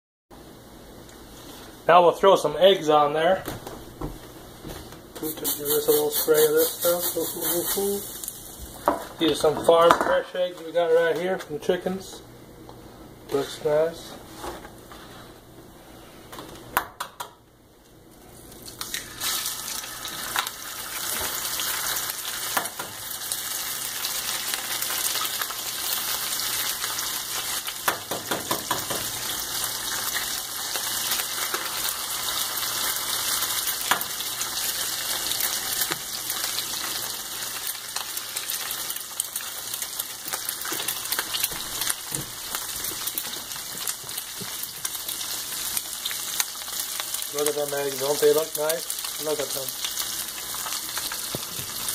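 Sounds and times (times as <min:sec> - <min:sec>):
eggs sizzling with crackling pops: 0:05.2 - 0:10.7, 0:16.3 - 0:51.9
knocks on skillet: 0:27.9 - 0:29.1.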